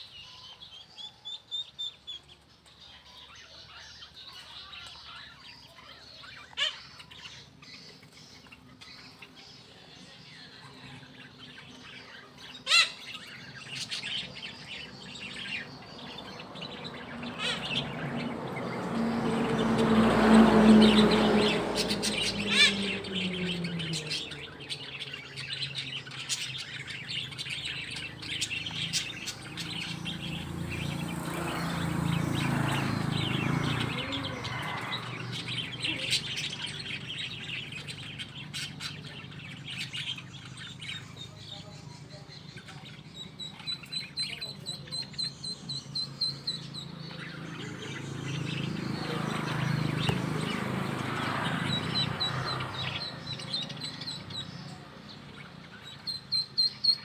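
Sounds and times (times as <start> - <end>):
chicks and ducklings peeping: 21.6 - 57.0.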